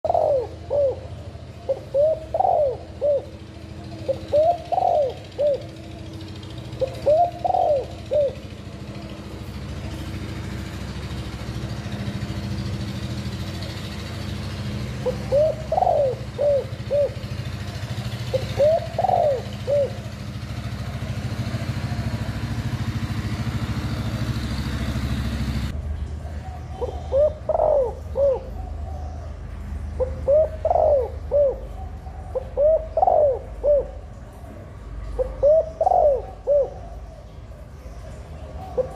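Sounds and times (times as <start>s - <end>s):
dove cooing: 0.0s - 9.3s, 14.8s - 23.2s, 26.2s - 29.4s, 30.0s - 38.9s.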